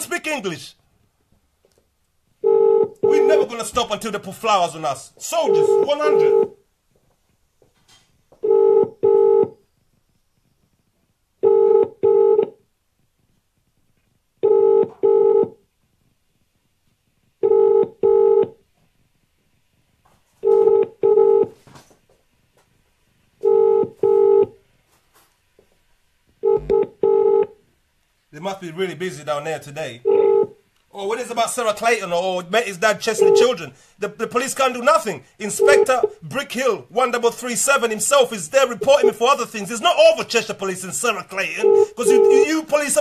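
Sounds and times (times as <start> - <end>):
telephone double ringing tone: 2.4 - 3.5, 8.4 - 9.6, 14.4 - 15.6, 17.4 - 18.6, 20.4 - 21.6, 23.4 - 24.5, 26.4 - 27.5, 41.6 - 42.5.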